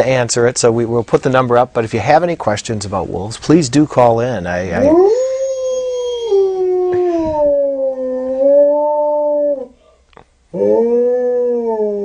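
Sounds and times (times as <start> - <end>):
wolf howling: 4.8 - 9.8, 10.5 - 12.0.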